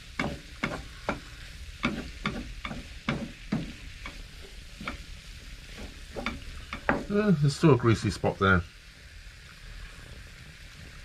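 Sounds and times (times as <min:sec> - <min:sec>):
wooden spoon scraping a pan: 0:00.0 - 0:07.2.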